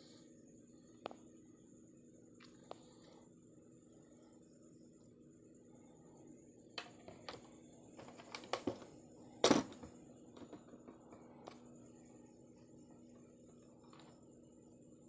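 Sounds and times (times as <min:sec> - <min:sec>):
faint steady hum: 0:00.0 - 0:15.0
plastic parts clicking and tapping: 0:06.8 - 0:11.6.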